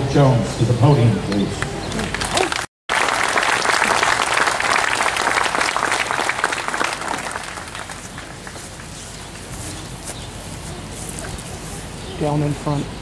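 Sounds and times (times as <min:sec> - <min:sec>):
crowd applauding: 0:01.6 - 0:09.4.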